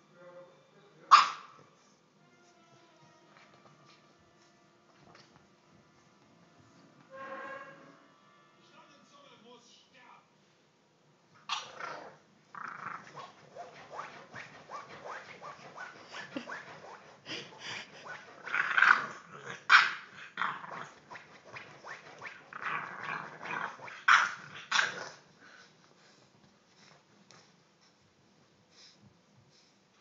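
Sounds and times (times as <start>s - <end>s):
puppy growling and grunting: 11.5s - 13.4s, 15.6s - 21.2s, 22.4s - 25.3s.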